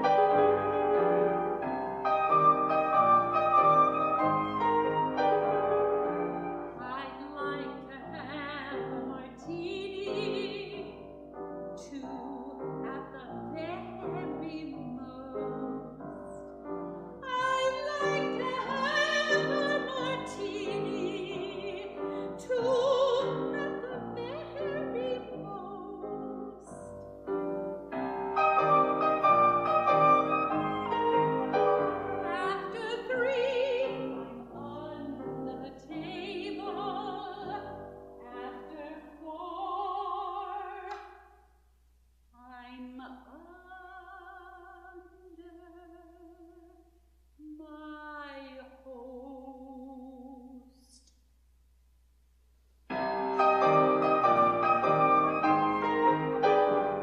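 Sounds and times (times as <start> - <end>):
piano accompaniment: 0.0 - 41.0, 52.9 - 57.0
soprano singing operatically: 2.2 - 11.1, 11.8 - 16.0, 17.2 - 26.8, 28.0 - 40.9, 42.4 - 46.8, 47.4 - 50.7.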